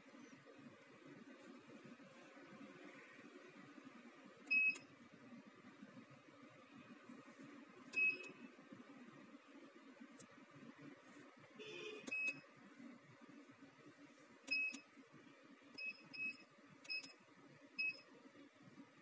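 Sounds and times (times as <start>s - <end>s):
short high keypad beeps: 14.5s - 14.8s.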